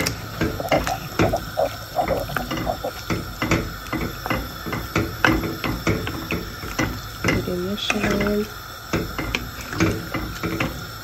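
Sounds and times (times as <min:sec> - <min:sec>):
liquid sloshing: 0:00.0 - 0:03.3.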